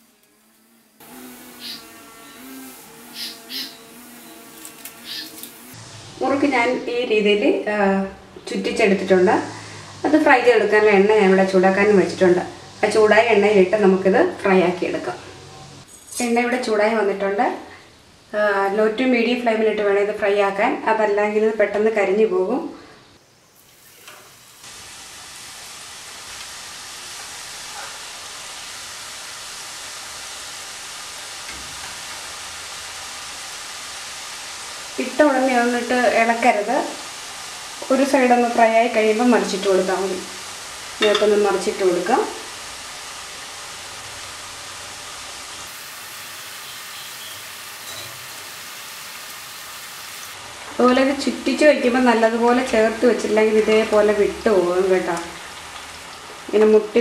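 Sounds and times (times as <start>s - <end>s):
food sizzling in hot oil: 0.0s - 6.5s, 23.2s - 56.2s.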